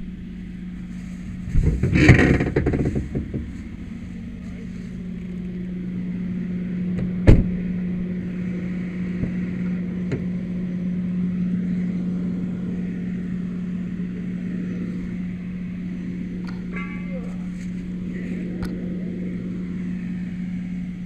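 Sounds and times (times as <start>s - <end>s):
engine droning: 0.0s - 21.0s.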